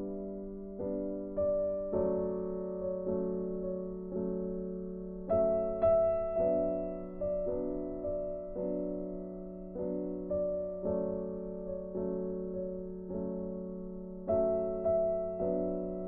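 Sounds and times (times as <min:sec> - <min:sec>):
soft piano music: 0:00.0 - 0:16.0.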